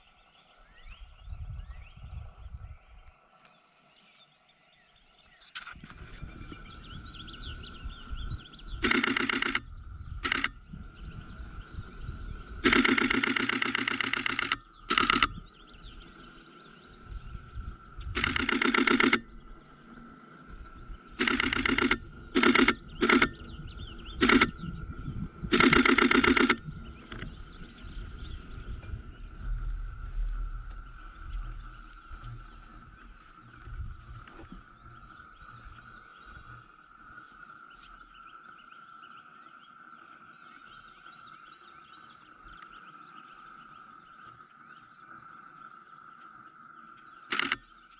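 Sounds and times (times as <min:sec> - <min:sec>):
camera shutter bursts: 0:08.8 - 0:10.6, 0:12.6 - 0:15.4, 0:18.1 - 0:19.3, 0:21.2 - 0:23.4, 0:24.2 - 0:24.6, 0:25.5 - 0:26.6, 0:47.3 - 0:47.7.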